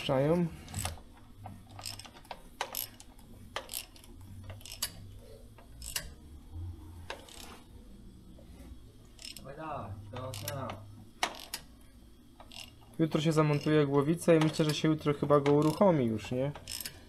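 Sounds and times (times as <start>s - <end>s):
steady low hum: 0.0s - 17.0s
metallic clicks and clunks: 12.4s - 17.0s.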